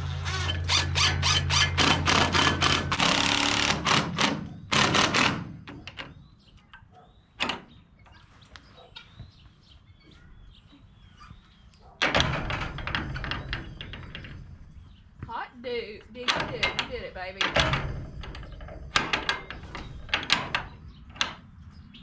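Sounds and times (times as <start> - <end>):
cordless drill driving screws: 0.0 - 5.5
metal gate clanking into latch: 0.3 - 7.8, 11.9 - 14.9, 16.0 - 21.5.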